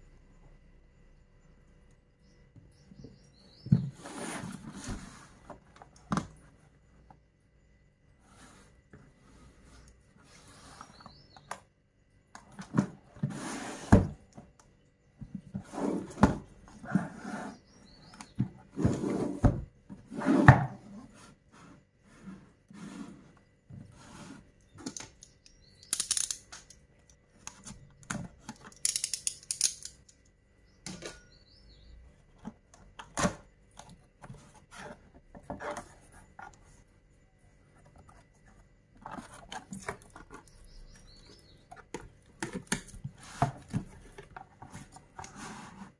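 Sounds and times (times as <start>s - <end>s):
cardboard sliding scrapes: 3.9s - 5.5s, 13.2s - 14.1s, 15.6s - 17.7s, 18.7s - 24.5s, 44.7s - 45.9s.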